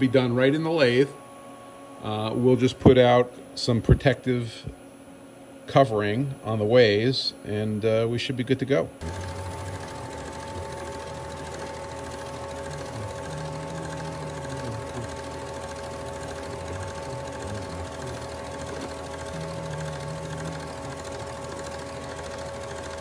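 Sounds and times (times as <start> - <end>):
metal lathe running: 9.0 - 23.0.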